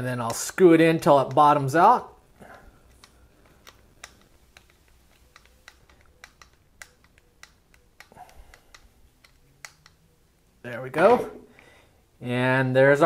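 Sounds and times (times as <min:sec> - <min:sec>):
screwdriver turning screw clicks: 0:02.9 - 0:10.0.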